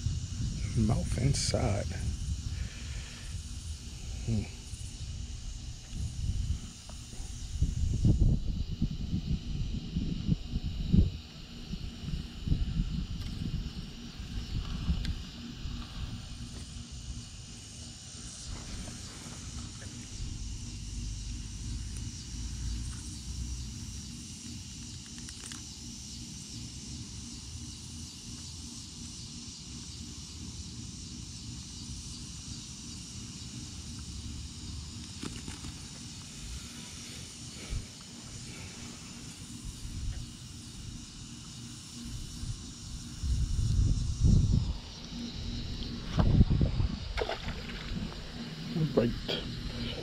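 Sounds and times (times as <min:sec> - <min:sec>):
wind rumble: 0:00.0 - 0:17.5, 0:42.0 - 0:50.0
insects chirring: 0:00.0 - 0:50.0
microphone handling noise: 0:46.0 - 0:48.2.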